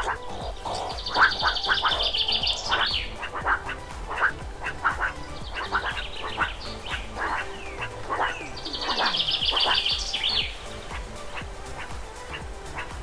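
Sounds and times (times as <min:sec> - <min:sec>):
birds chirping: 0:00.0 - 0:13.0
high bird trill: 0:00.0 - 0:13.0.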